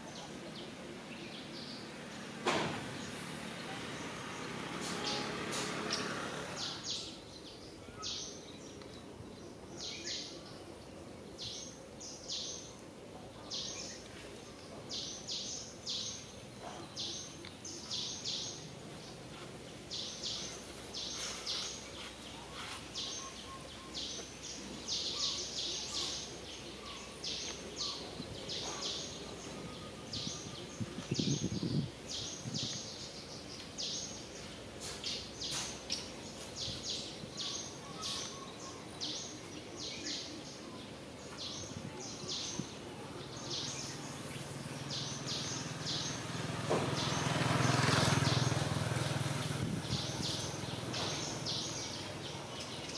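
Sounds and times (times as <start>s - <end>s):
steady low hiss: 0.0s - 47.7s, 48.3s - 52.9s.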